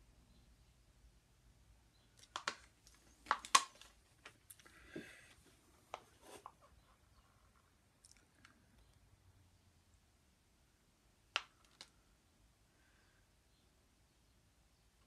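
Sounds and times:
plastic rustling: 0:02.2 - 0:04.7
plastic cups clicking and knocking: 0:02.2 - 0:05.1.

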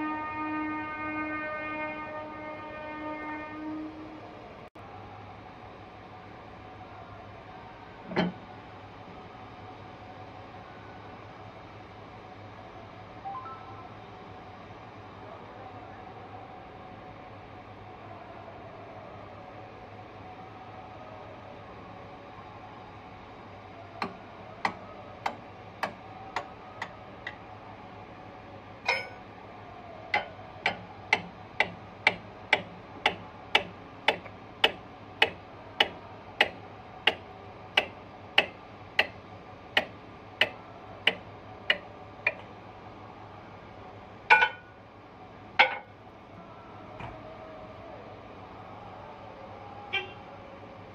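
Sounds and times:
metal knocks: 0:28.9 - 0:29.2, 0:44.3 - 0:44.6, 0:45.6 - 0:45.9
sharp metallic clicks: 0:37.8 - 0:39.2.

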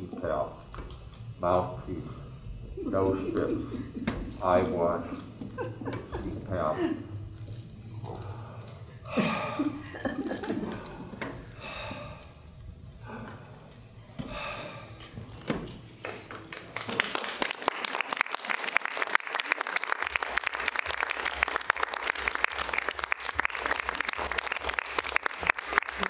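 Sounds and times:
audience applauding: 0:15.9 - 0:26.0.

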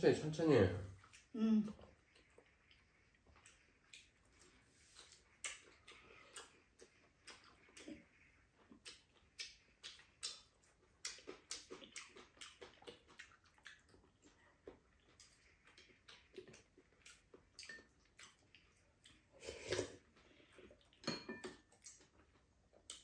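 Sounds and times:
chopsticks and spoons tapping bowls: 0:21.0 - 0:21.7.

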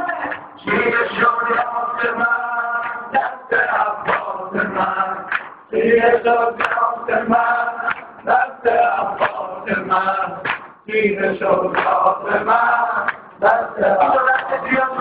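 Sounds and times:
men chanting a lament: 0:00.0 - 0:15.0
hands slapping chests: 0:04.0 - 0:05.6, 0:06.6 - 0:06.9, 0:07.8 - 0:08.4, 0:10.4 - 0:10.8, 0:11.7 - 0:13.4.

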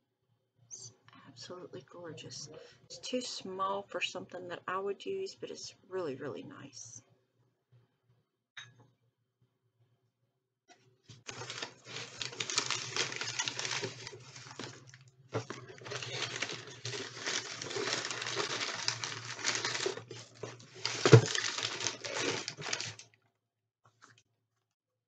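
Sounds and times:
paper packing rustling: 0:11.2 - 0:23.1.

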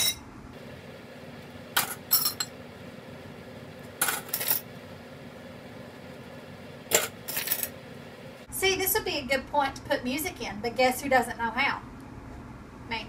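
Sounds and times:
metal cutlery clinking: 0:01.8 - 0:02.5, 0:04.0 - 0:04.7, 0:06.9 - 0:07.8.

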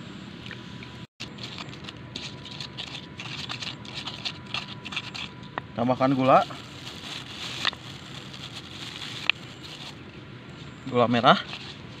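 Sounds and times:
pestle crushing chilies in mortar: 0:01.2 - 0:05.4.

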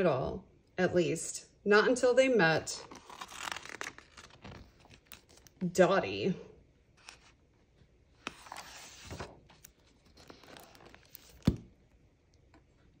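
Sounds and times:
book pages rustling: 0:02.8 - 0:05.6, 0:07.0 - 0:07.5, 0:08.1 - 0:11.8
book closing thump: 0:10.5 - 0:11.7.

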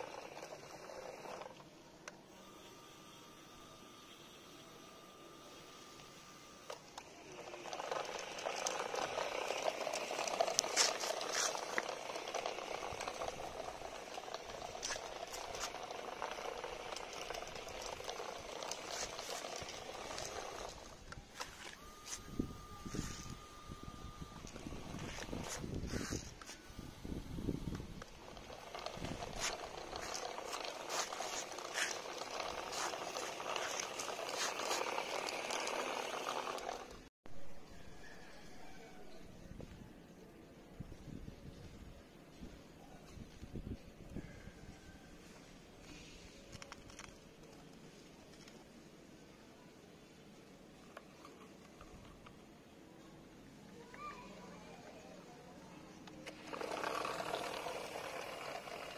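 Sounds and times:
plastic wheels clattering: 0:00.0 - 0:01.7, 0:06.7 - 0:21.9, 0:27.8 - 0:37.1, 0:45.9 - 0:48.7, 0:56.0 - 0:58.9
small gear motor whirring: 0:00.0 - 0:37.1, 0:53.8 - 0:58.9.

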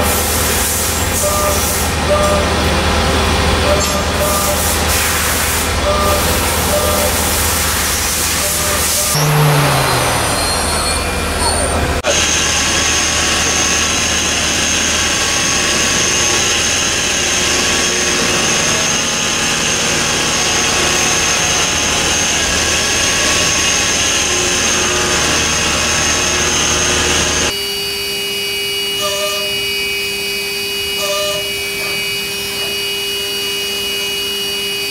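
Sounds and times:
end mill cutting under coolant: 0:00.0 - 0:27.5
turning center machining whine: 0:00.0 - 0:34.9.

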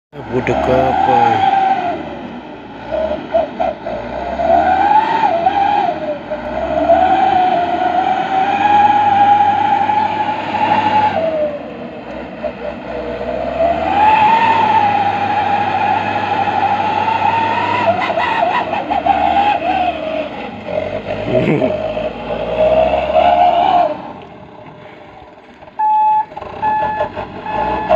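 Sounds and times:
truck engine revving in mud: 0:00.2 - 0:27.9.

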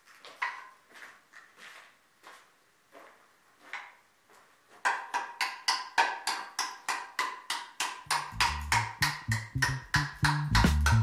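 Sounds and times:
percussive background music: 0:08.0 - 0:11.0
bass line: 0:08.1 - 0:11.0.

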